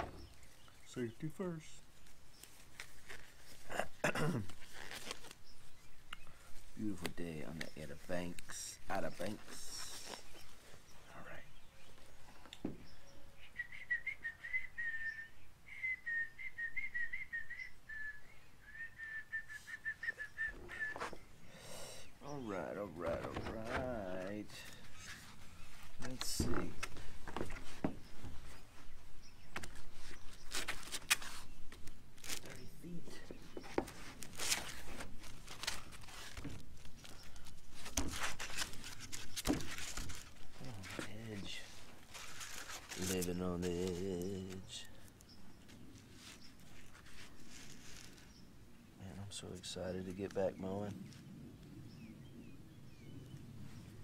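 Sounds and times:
grip tape crackling and tearing: 2.4s - 6.2s, 29.5s - 32.9s, 33.7s - 45.2s, 45.9s - 48.3s
person whistling a tune: 13.6s - 21.1s.

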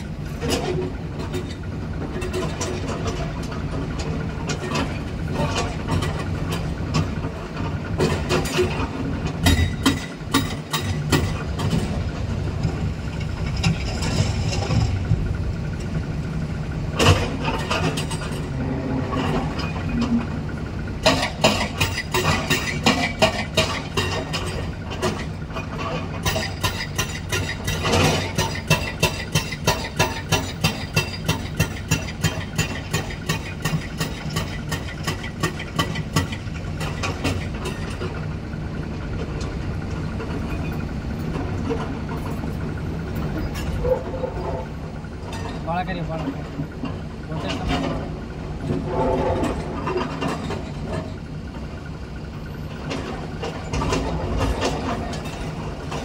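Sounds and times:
excavator diesel engine running: 0.0s - 56.0s
hydraulic breaker hammering rock: 21.0s - 24.5s, 26.2s - 37.8s.

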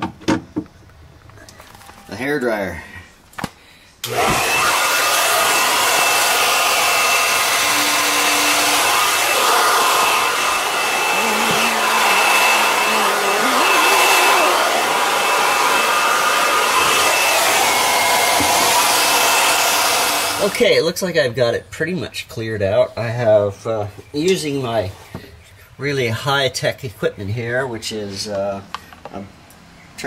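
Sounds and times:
hair dryer blowing: 4.0s - 20.6s.

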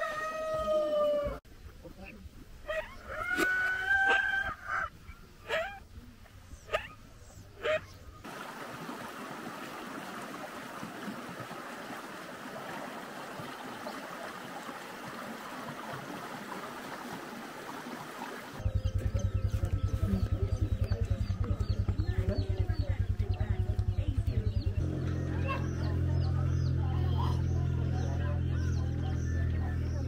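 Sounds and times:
animal calls: 2.6s - 5.9s, 6.5s - 8.2s
rhythmic low pulsing: 18.6s - 30.0s.

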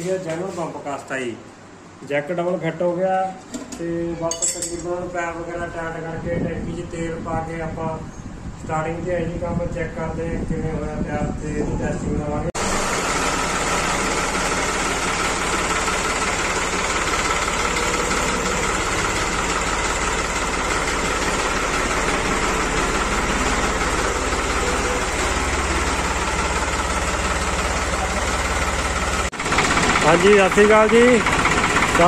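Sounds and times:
tractor diesel engine idling: 12.6s - 32.0s.

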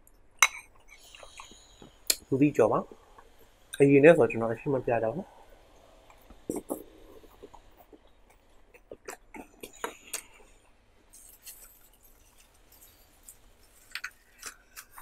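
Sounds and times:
sip from a spoon: 0.8s - 2.2s
soft chewing with mouth clicks: 6.5s - 15.0s.

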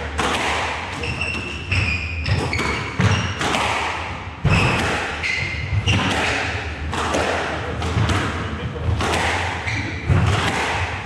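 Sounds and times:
squash ball smacking rackets and walls: 0.0s - 11.0s
sneakers squeaking on wooden floor: 1.0s - 3.6s, 4.5s - 7.1s, 9.6s - 10.5s.

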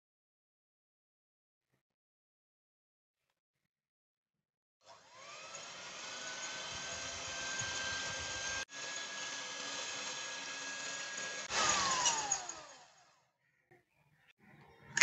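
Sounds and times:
electric hand mixer whining: 4.8s - 13.2s.

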